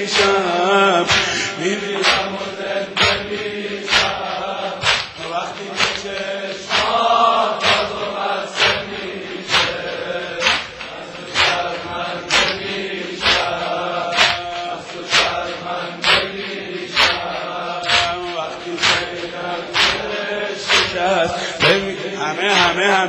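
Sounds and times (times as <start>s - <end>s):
men chanting together: 0.0s - 23.0s
chest-beating slaps: 1.0s - 22.8s.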